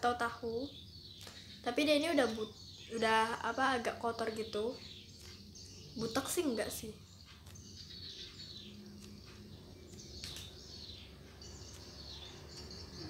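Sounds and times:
faint background noise: 0.0 - 13.0.

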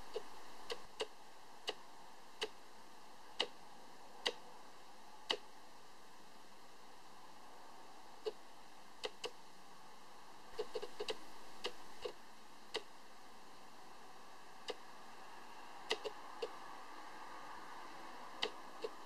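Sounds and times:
room hiss: 0.0 - 19.0.

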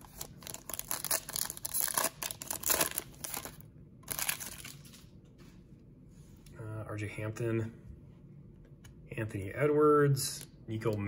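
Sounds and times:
plastic wrapper tearing and crinkling: 0.0 - 5.0.

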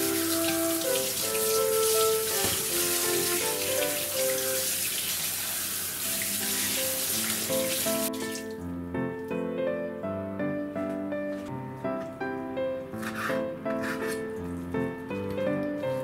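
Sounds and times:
background music: 0.0 - 4.8, 6.2 - 16.0
faucet spraying water into sink: 0.0 - 8.6.

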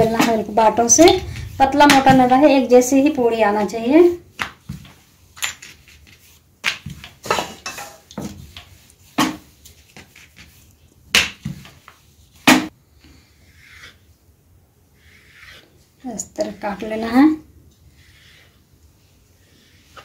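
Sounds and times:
rolling pin rubbing on dough: 13.1 - 20.0.

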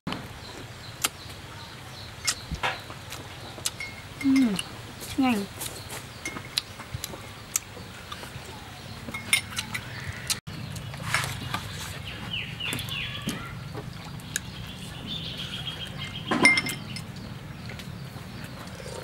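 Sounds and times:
eating sounds: 0.2 - 19.0
metal spoon clinking on ceramic bowls: 9.1 - 10.0, 16.1 - 17.1
high chirping animal calls: 12.0 - 13.8.

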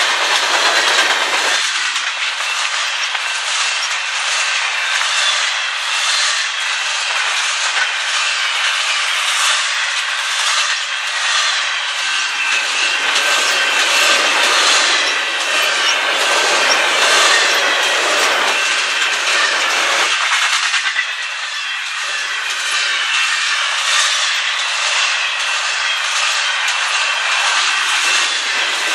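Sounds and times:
train wheels rolling on rails: 0.0 - 28.9.

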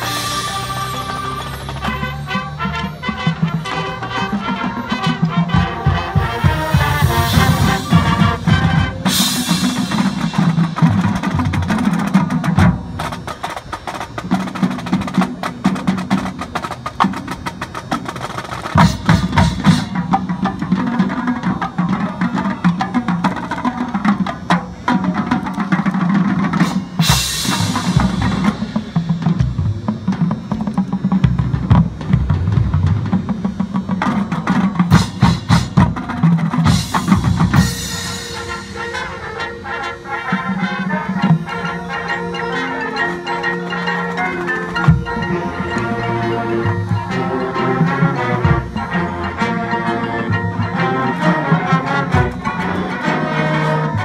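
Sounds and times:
marimbas and keyboard mallets: 0.0 - 3.2, 40.9 - 54.0
rapid snare drum strokes: 0.0 - 42.1
cymbal crashes: 26.6 - 29.7.

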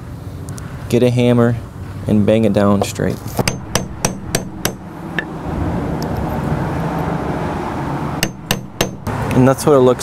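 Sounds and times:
hammer tapping metal socket: 3.4 - 5.3, 8.2 - 9.1.

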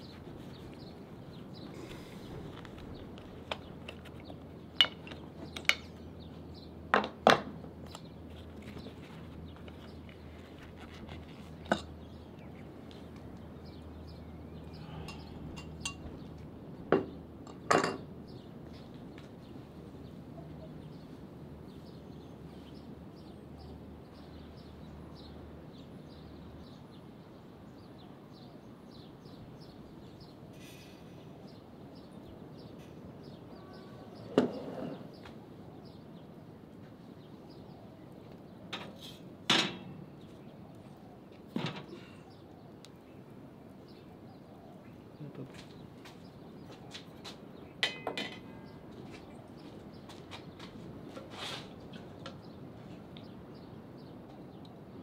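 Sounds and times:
utensils and dishes clinking: 47.8 - 48.5.

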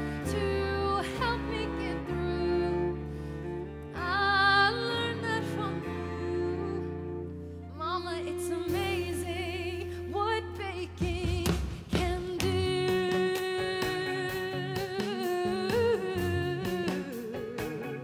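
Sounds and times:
orchestral strings and bass: 0.0 - 18.0
person singing with vibrato: 8.1 - 18.0.

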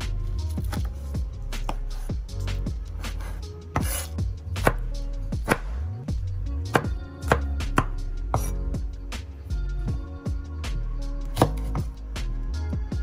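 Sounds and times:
background music: 0.0 - 13.0
cleaver chopping on wooden board: 3.8 - 5.8, 6.7 - 8.5, 11.3 - 11.9.

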